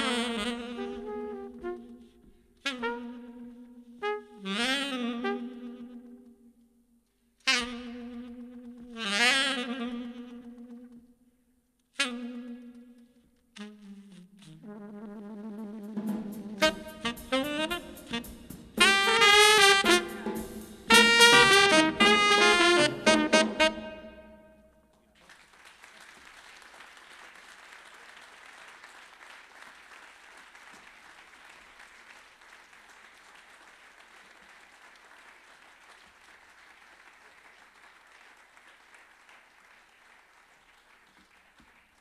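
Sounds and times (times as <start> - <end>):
saxophone and trumpet note: 0.0 - 6.2, 13.6 - 24.7
audience applauding: 25.2 - 42.0.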